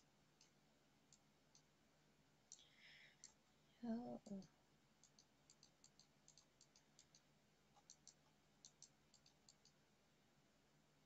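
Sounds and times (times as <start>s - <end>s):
faint low hum: 0.0s - 11.0s
computer mouse clicks: 0.4s - 1.7s, 2.5s - 3.4s, 5.0s - 9.8s.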